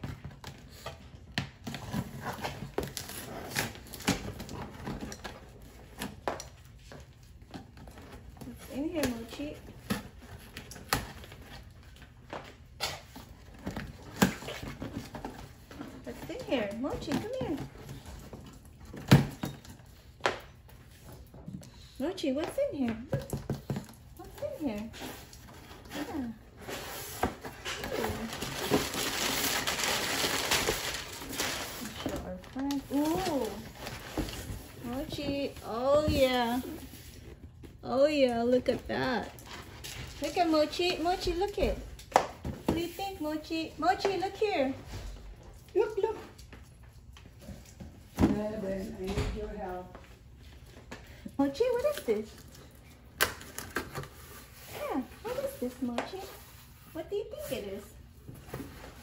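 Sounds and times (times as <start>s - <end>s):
packing paper rustling and crinkling: 24.9s - 37.7s.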